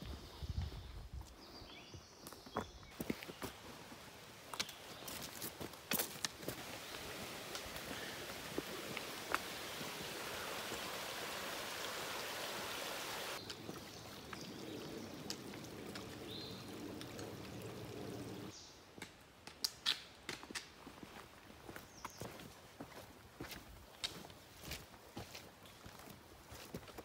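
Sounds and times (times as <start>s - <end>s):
footsteps on trail: 0.0s - 11.1s, 13.3s - 18.3s, 20.4s - 27.0s
stream running water: 3.0s - 18.6s.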